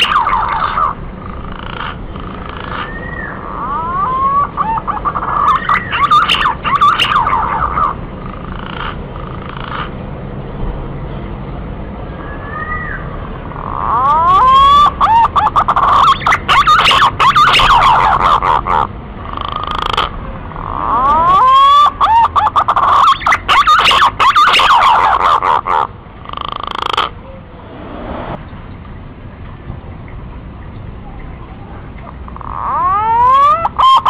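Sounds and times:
pigeons calling fluty whistles: 2.8 - 4.7.

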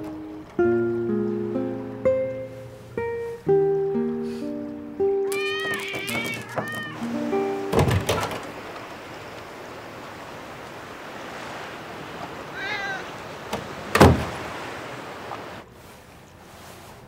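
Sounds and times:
steady background hiss: 0.0 - 5.9, 7.0 - 17.0
cat meowing: 5.2 - 7.1, 12.5 - 13.2
wooden door shutting: 5.6 - 7.0, 7.6 - 8.6, 13.5 - 14.5.

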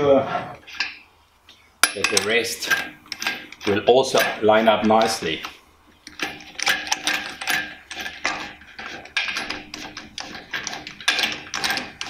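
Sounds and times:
metal clicking and clinking: 1.8 - 12.0.

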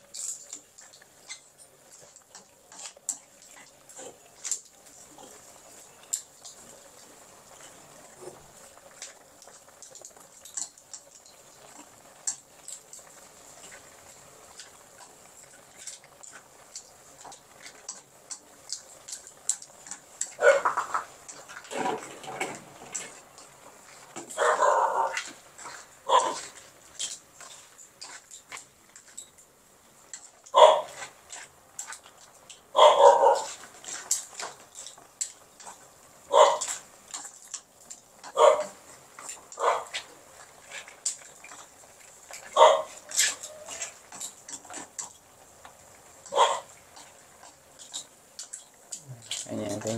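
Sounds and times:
vegetables sizzling in a pan: 0.0 - 32.7
oil popping and spitting: 0.0 - 49.9
dog barking: 20.4 - 20.8, 24.4 - 25.2, 26.1 - 26.4, 30.5 - 31.0, 32.8 - 33.6, 36.3 - 36.7, 38.3 - 38.8, 39.6 - 39.9, 42.6 - 43.0, 46.3 - 46.7.

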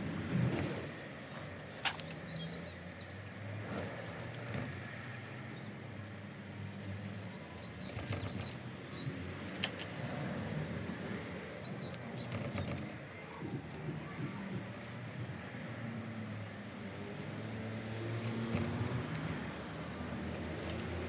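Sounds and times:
small birds chirping: 1.6 - 16.3
paint roller rustling: 7.6 - 21.0.

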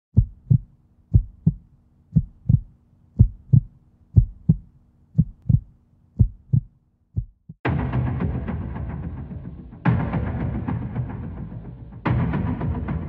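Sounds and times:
heartbeat double thumps: 0.1 - 7.6.

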